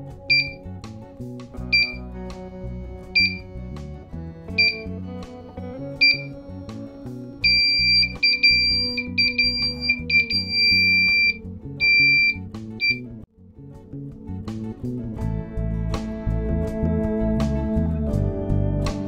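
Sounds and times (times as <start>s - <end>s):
background music: 0.0s - 19.0s
high-pitched buzzer beeping: 0.3s - 0.6s, 1.7s - 2.0s, 3.2s - 3.5s, 4.6s - 4.9s, 6.0s - 6.3s, 7.4s - 13.0s.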